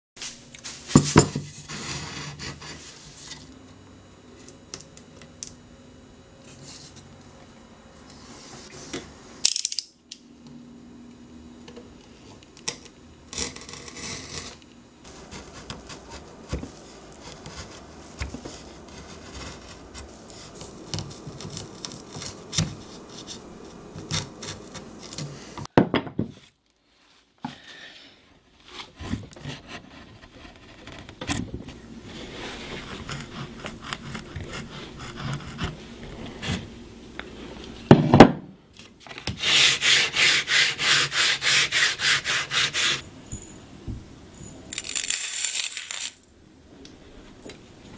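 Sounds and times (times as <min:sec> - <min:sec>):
tools scraping wood: 0:32.2 - 0:36.7, 0:39.3 - 0:43.0
chisel paring wood shavings: 0:32.6 - 0:35.8.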